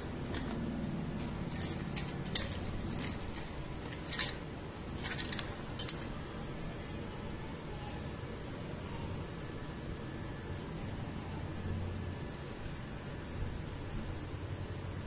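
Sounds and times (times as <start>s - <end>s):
hand tool snipping wires: 1.2s - 4.4s.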